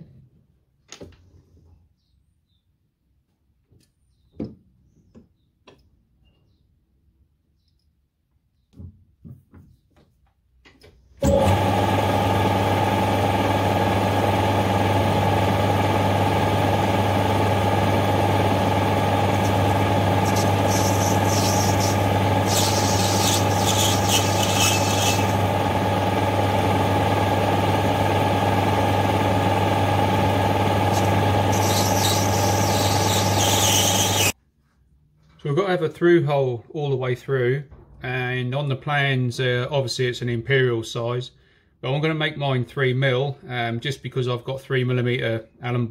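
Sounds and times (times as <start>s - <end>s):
metal lathe humming: 11.2s - 34.4s
cutting tool hiss on metal: 20.2s - 25.4s, 30.9s - 34.3s.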